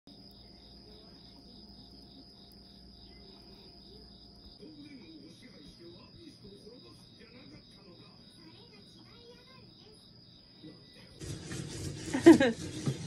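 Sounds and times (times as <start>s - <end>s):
insects chirping: 0.1s - 12.9s
faint low murmur: 0.2s - 9.1s.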